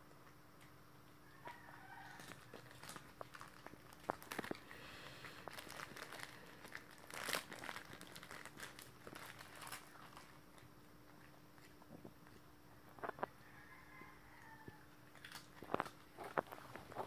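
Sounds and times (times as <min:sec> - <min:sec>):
plastic wrapper crinkling: 0:01.8 - 0:10.7, 0:15.1 - 0:17.0.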